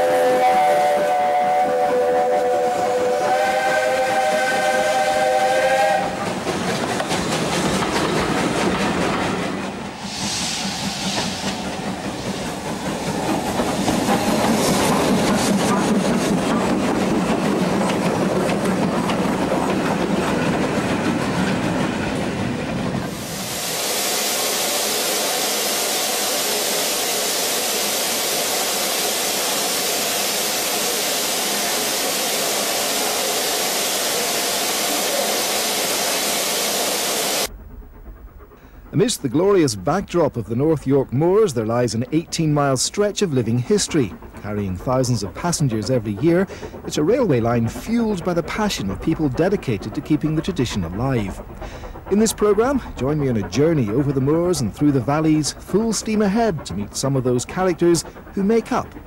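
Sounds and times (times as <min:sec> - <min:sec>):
steam locomotive whistle: 0:00.0 - 0:06.2
escaping steam hissing: 0:00.0 - 0:37.6, 0:38.3 - 0:59.0
steam engine working: 0:00.0 - 0:59.0.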